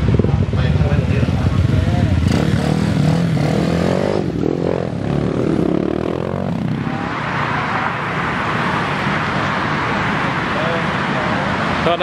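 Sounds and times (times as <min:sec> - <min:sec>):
dirt bike engines revving: 0:00.0 - 0:12.0.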